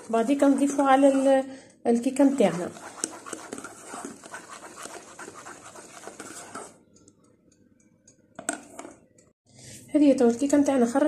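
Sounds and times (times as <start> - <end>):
whisk scraping a saucepan: 0.0 - 1.5, 2.2 - 6.8.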